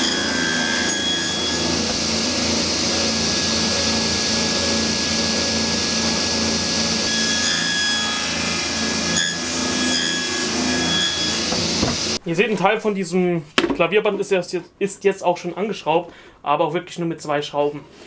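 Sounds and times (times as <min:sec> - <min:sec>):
table saw cutting wood: 0:00.0 - 0:12.2.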